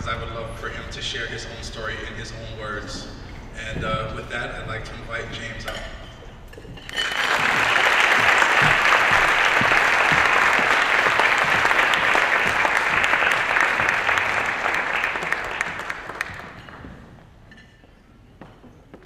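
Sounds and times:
audience applauding: 6.9s - 17.1s.

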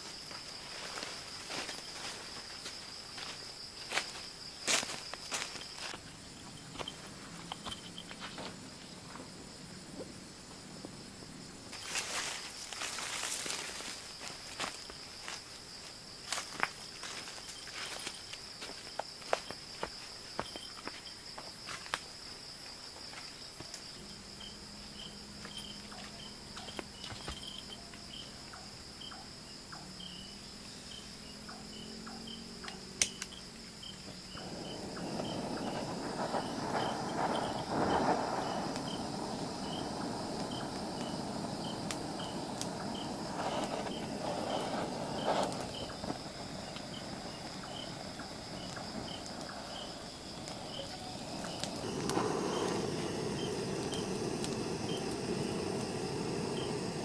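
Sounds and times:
butane torch hissing: 0.0s - 15.6s, 34.1s - 57.0s
crickets chirping: 0.0s - 57.0s.

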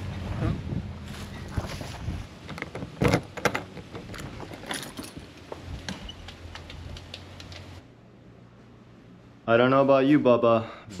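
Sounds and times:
keys jangling: 4.1s - 5.2s.

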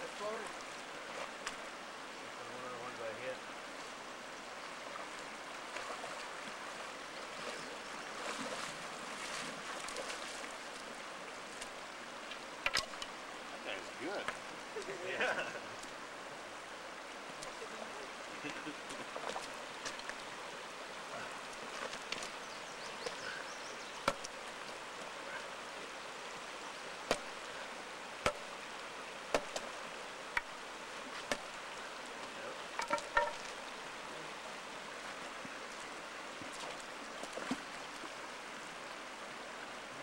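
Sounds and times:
stream flowing: 0.0s - 40.0s
stick knocks on fish: 24.0s - 24.3s, 27.1s - 27.4s, 28.2s - 28.5s, 29.3s - 29.7s, 32.8s - 33.5s.

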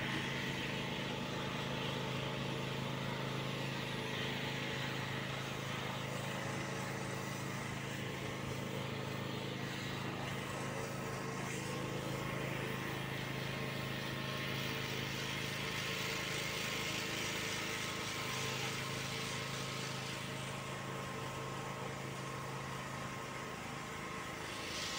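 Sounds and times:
motor droning: 0.0s - 24.9s.

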